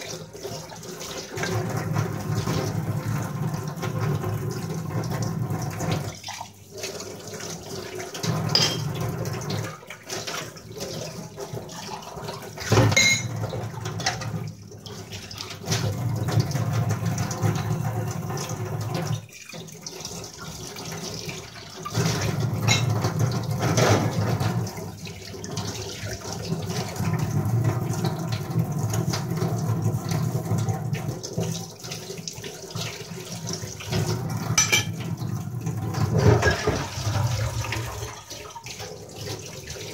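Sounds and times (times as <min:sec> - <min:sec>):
tap water splashing in sink: 0:00.0 - 0:39.9
metal vessels clinking: 0:08.5 - 0:09.0, 0:12.8 - 0:13.4, 0:22.6 - 0:23.1, 0:34.6 - 0:35.1, 0:36.2 - 0:36.9.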